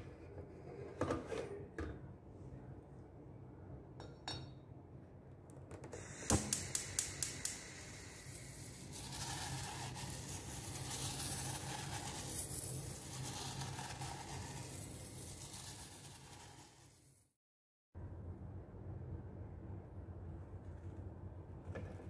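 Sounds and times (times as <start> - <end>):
gel beads rustling in a pot: 8.2 - 17.2.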